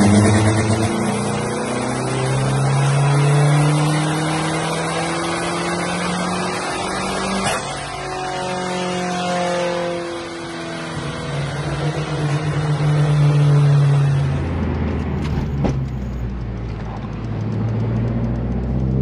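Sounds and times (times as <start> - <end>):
car engine revving on dyno: 0.0 - 19.0
engine drone inside cabin: 0.0 - 19.0.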